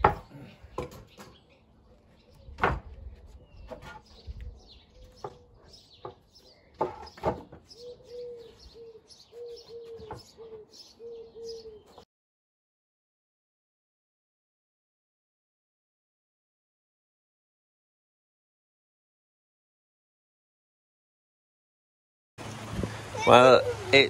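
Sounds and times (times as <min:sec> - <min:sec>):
wooden boards knocking: 0:00.0 - 0:01.3, 0:02.6 - 0:03.0, 0:03.7 - 0:04.0, 0:06.0 - 0:07.7
small birds chirping: 0:00.0 - 0:12.1
pigeon cooing: 0:04.8 - 0:06.0, 0:07.7 - 0:12.0.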